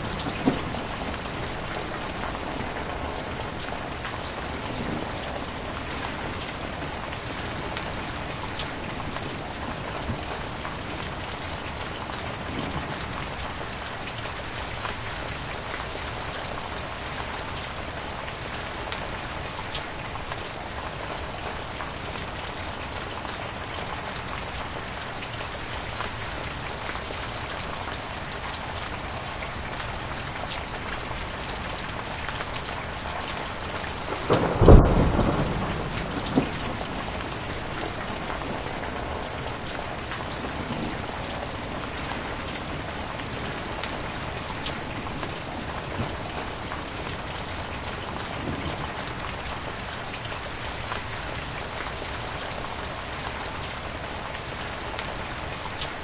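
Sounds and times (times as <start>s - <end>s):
heavy rain falling: 0.0s - 56.0s
thunder clap rumbling: 33.4s - 49.4s.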